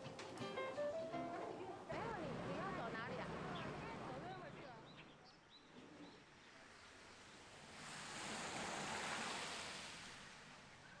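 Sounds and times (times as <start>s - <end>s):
car tyres hissing on wet road: 7.1s - 10.8s.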